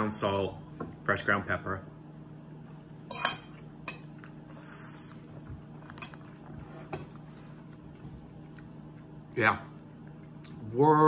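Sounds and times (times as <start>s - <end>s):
fork clinking on ceramic plate: 3.1s - 4.1s.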